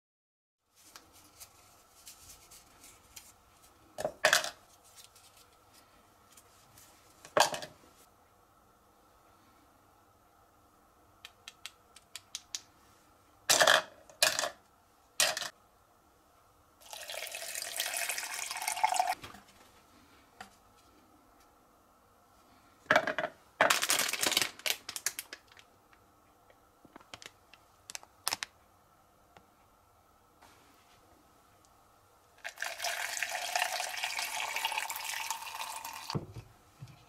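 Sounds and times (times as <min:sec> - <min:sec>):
water pouring: 0:16.8 - 0:19.2, 0:32.4 - 0:36.2.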